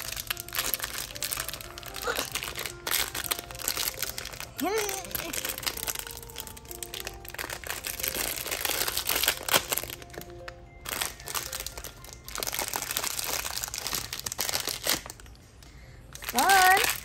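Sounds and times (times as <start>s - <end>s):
faint steady musical tones: 0.0s - 17.0s
plastic wrapper crinkling: 0.0s - 17.0s.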